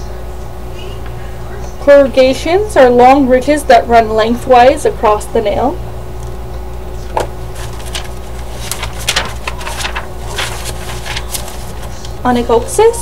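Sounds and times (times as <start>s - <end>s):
steady low hum: 0.0s - 13.0s
paper rustling: 7.2s - 13.0s.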